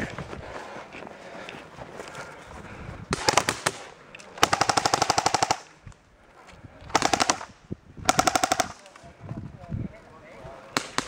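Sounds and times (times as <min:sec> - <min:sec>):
airsoft gun full-auto bursts: 0:04.4 - 0:05.7, 0:06.9 - 0:08.8.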